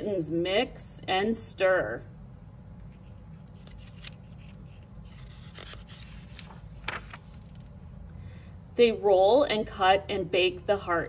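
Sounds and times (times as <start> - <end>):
paper page turning: 2.8 - 7.8.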